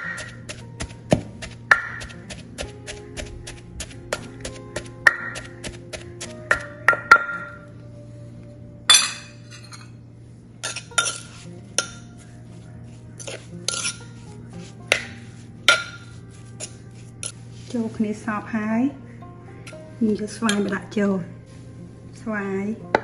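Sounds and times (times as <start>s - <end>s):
metal spoon scraping mortar: 0.0s - 6.7s, 10.6s - 12.3s, 13.1s - 17.8s
pestle striking in clay mortar: 0.0s - 7.4s.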